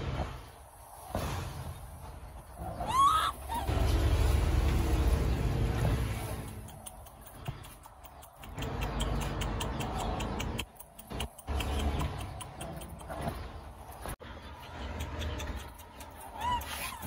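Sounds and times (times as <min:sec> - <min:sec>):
low rumble: 0:03.4 - 0:06.6
rapid even ticking: 0:06.5 - 0:13.3.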